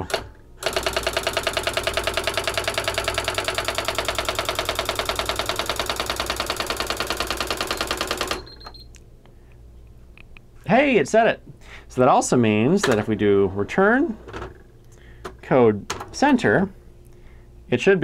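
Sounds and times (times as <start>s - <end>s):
electronic typewriter rapid strikes: 0.0s - 8.7s.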